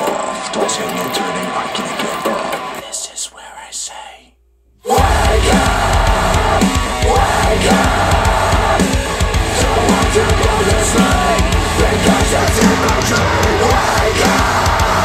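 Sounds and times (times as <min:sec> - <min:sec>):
death metal music on speakers: 0:04.9 - 0:15.0.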